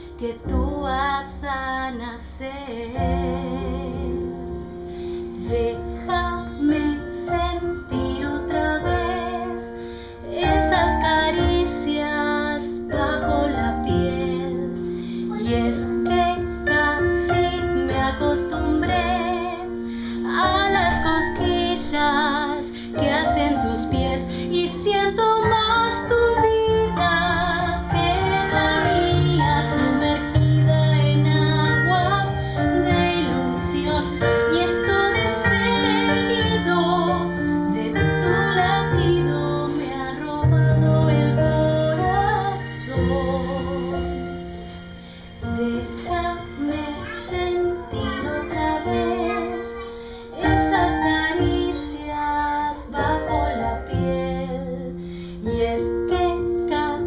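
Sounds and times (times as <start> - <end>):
woman singing: 0.0 - 44.6, 45.4 - 49.8, 50.4 - 57.0
piano and keyboard: 0.0 - 57.0.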